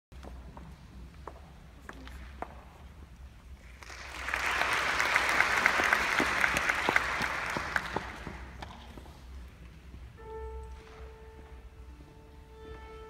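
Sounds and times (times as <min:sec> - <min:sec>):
audience applause: 0:03.6 - 0:08.6.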